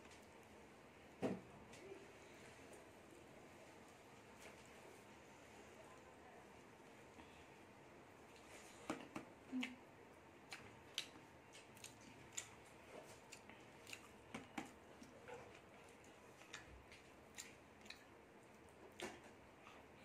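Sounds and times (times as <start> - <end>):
fingers kneading rice on plate: 10.5 - 18.1.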